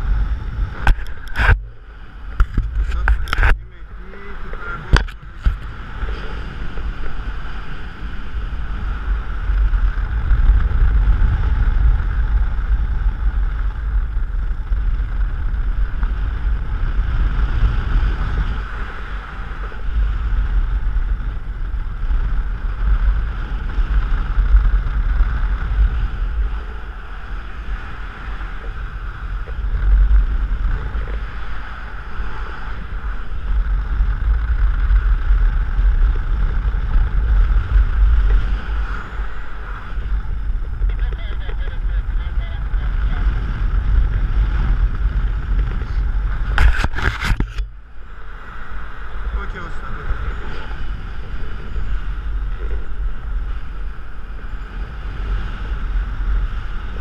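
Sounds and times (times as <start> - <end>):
wind rushing over microphone: 0.0 - 57.0.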